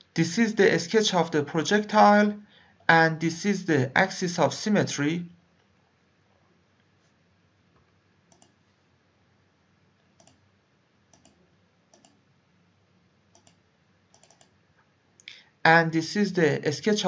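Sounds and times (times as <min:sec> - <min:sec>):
computer mouse clicks: 0:08.3 - 0:08.6, 0:10.0 - 0:10.4, 0:11.1 - 0:12.2, 0:13.3 - 0:14.6.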